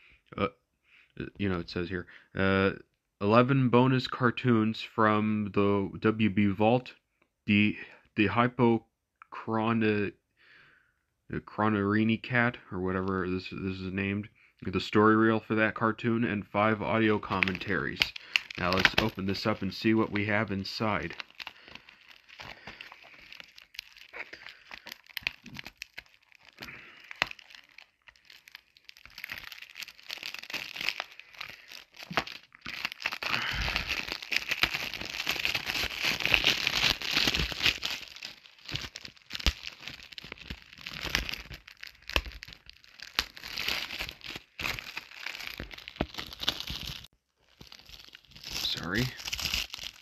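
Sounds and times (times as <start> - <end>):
plastic wrap crinkling: 16.6 - 50.0
plastic film clicks and scratches: 17.0 - 50.0.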